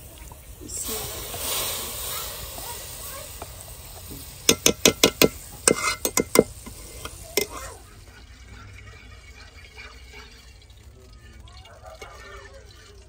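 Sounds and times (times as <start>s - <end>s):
metal spoon knocking against pan: 4.5s - 6.8s.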